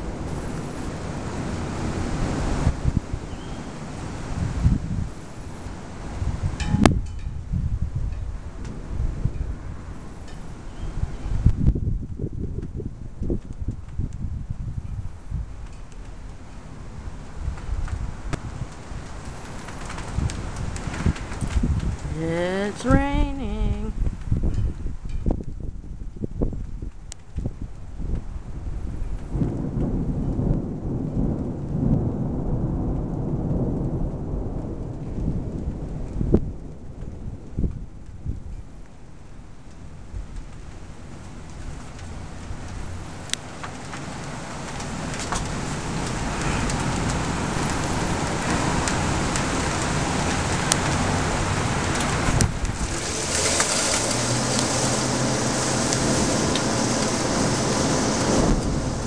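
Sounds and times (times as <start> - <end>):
rain falling: 0.0 - 59.0
thunder rumbling: 16.9 - 25.6, 27.5 - 38.8, 39.9 - 59.0.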